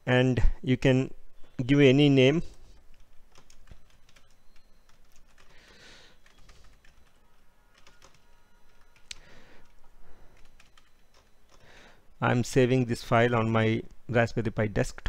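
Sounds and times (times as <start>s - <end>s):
keyboard keys tapping: 2.8s - 11.7s.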